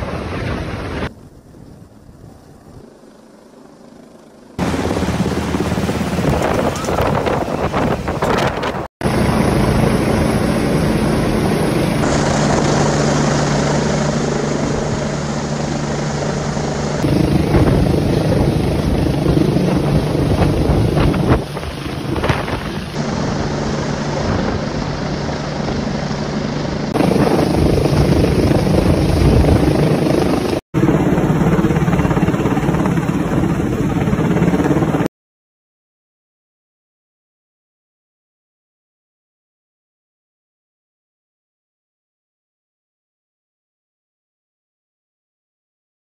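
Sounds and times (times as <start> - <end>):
helicopter rotor and turbine noise: 0.0 - 35.1
rotor downwash buffeting microphone: 4.6 - 35.0.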